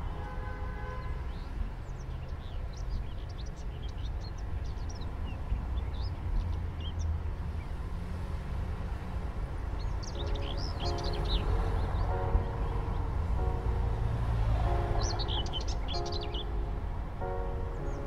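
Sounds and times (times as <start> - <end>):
small birds chirping: 1.3 - 7.8, 9.5 - 13.7, 14.7 - 18.0.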